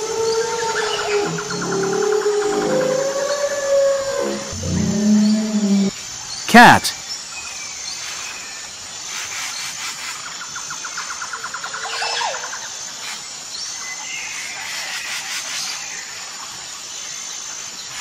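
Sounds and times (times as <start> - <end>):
birds chirping: 0.0 - 6.9
steady outdoor hiss: 0.0 - 18.0.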